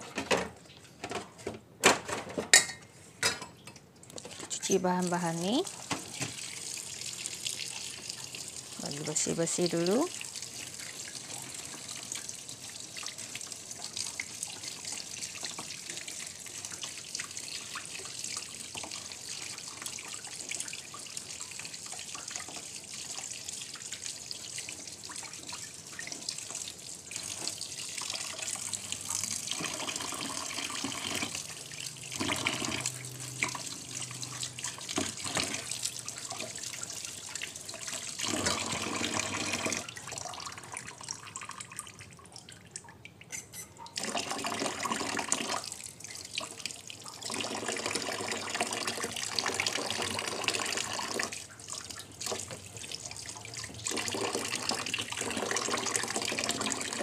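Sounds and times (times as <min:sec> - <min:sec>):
tap water splashing into sink: 0:05.8 - 0:06.5, 0:27.3 - 0:31.5, 0:34.6 - 0:36.8, 0:37.9 - 0:40.4.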